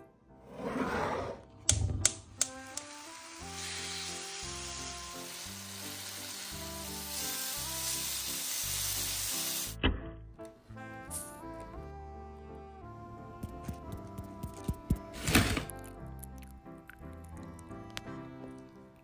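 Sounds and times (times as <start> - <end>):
background music: 0.0 - 19.0
chicken sizzling in a pan: 2.7 - 9.8.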